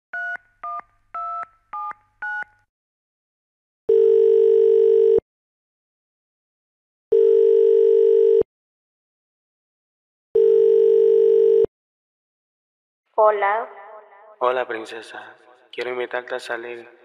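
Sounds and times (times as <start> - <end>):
touch-tone keypad beeps: 0.2 - 2.5
telephone ringing tone: 3.9 - 5.2, 7.1 - 8.5, 10.4 - 11.7.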